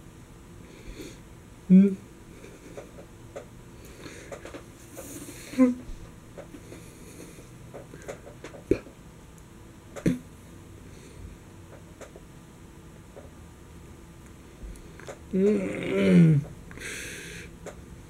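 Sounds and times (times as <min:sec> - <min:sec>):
man's rising vocal noise: 0:15.3 - 0:16.5.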